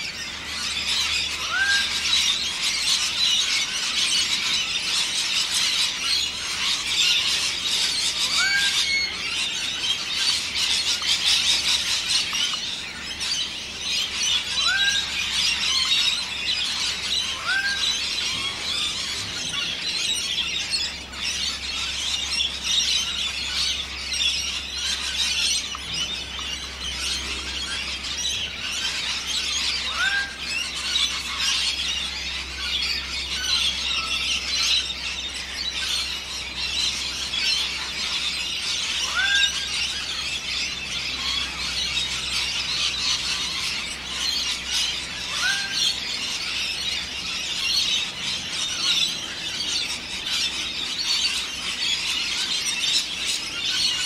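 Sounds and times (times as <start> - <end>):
birds chattering in chorus: 0.0 - 54.0
rising and falling bird call: 0.0 - 54.0.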